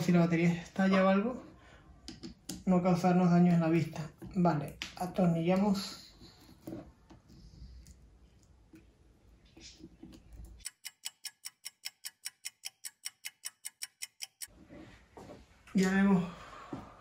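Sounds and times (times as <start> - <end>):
rapid sharp ticks: 10.6 - 14.5.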